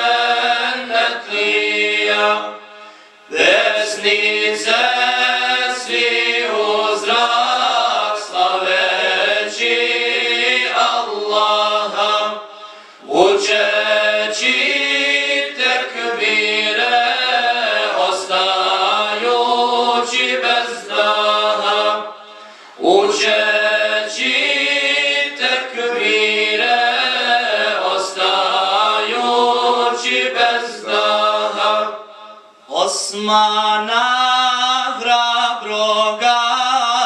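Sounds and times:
men singing a cappella: 0.0 - 37.0.

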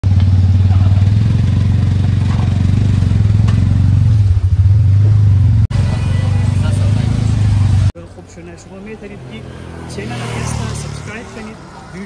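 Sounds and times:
motorcycle engine running: 0.0 - 8.0.

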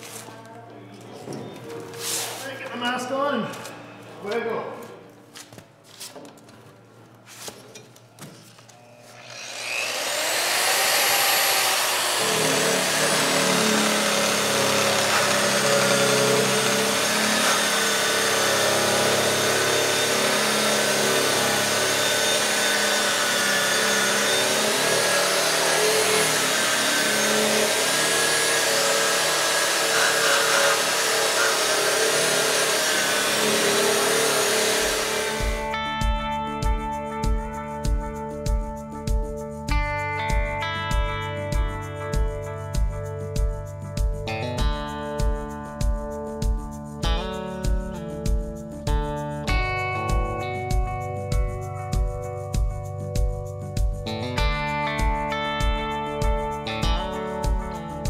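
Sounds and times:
electric polisher grinding paint: 9.0 - 35.8.

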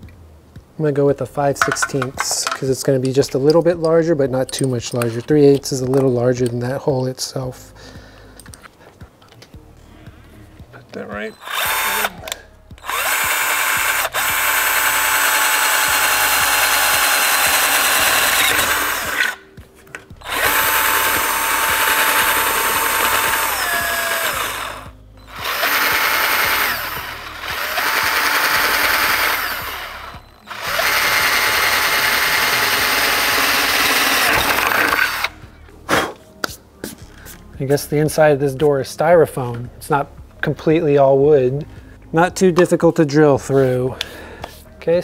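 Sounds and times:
cordless drill whining: 11.3 - 19.6, 20.2 - 35.4.

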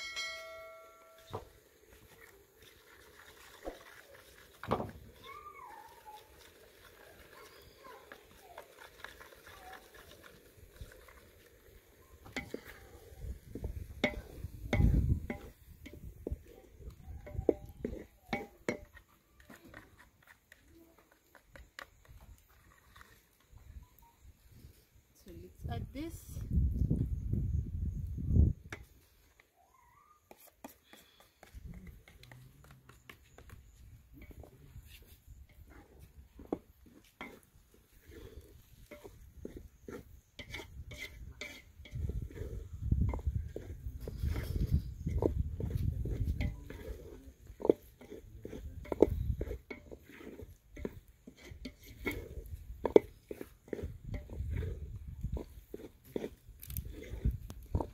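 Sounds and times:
spoon tapping and scraping pot: 12.2 - 23.2, 28.7 - 29.0, 30.3 - 33.6, 35.4 - 57.9.

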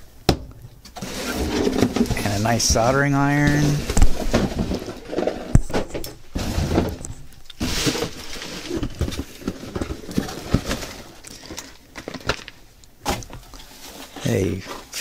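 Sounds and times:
boxes knocking and clicking: 0.3 - 13.4
packaging rustling: 3.3 - 15.0.

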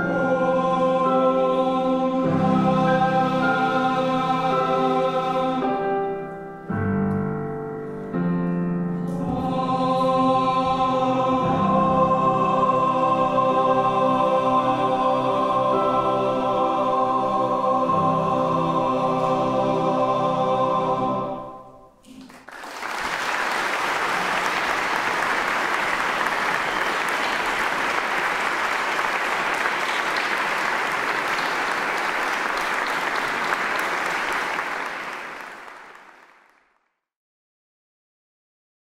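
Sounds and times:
boys' choir singing: 0.0 - 5.9, 9.1 - 21.8
audience applause: 22.1 - 36.7.

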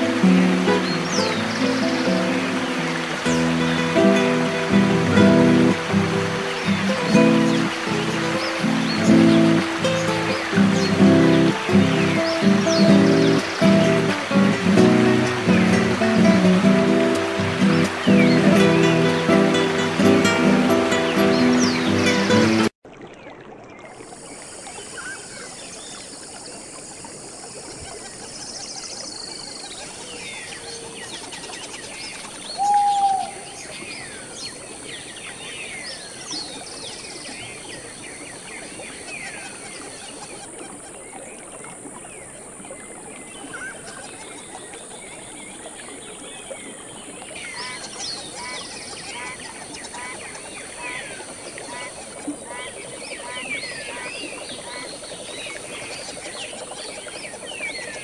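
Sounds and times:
steady high hiss: 0.0 - 22.6
birds chirping: 0.0 - 22.7, 28.4 - 41.3, 43.2 - 58.0
loud short bird call: 32.6 - 33.5.

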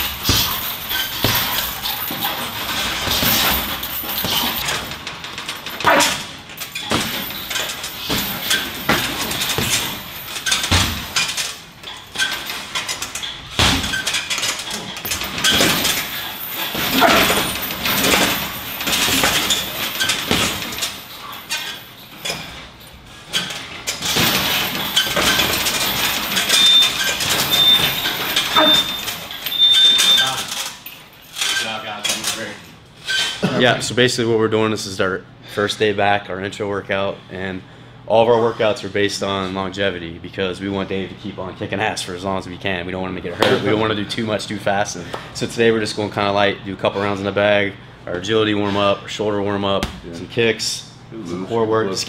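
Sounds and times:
boxing gloves slapping heavy bag: 0.0 - 4.9, 8.0 - 11.2, 13.5 - 14.0, 16.7 - 20.8, 24.0 - 29.0.

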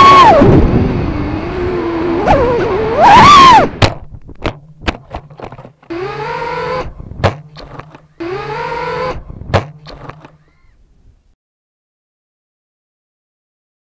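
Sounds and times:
electric motors whining: 0.0 - 3.8, 5.3 - 10.7
clicks and knocks: 3.8 - 5.9, 7.2 - 8.1, 9.5 - 10.4.

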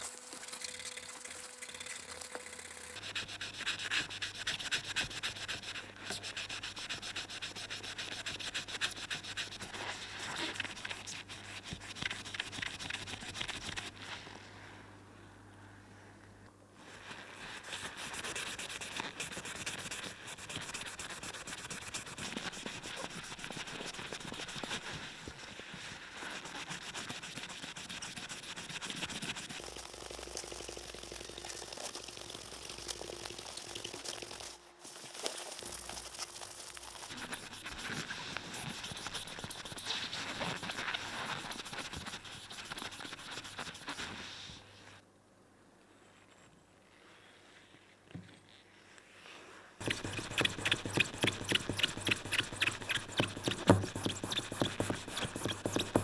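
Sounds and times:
rapid scrubbing scratch: 0.0 - 13.9, 17.4 - 25.2, 26.0 - 30.8, 35.6 - 44.3, 49.8 - 56.0.

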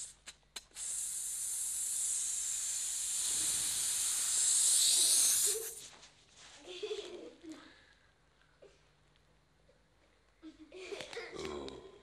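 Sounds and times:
man hissing through teeth: 0.0 - 5.9.

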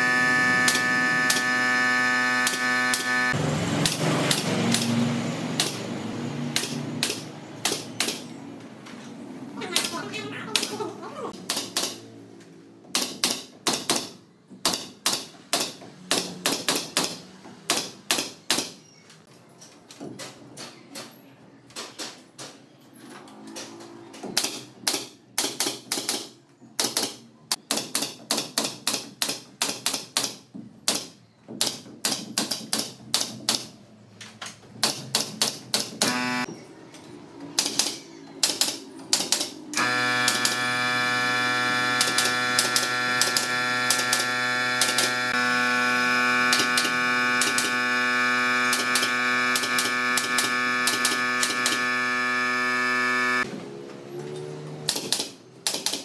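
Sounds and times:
sharp typewriter-like clicks: 37.6 - 39.6, 48.7 - 51.8, 54.9 - 56.0.

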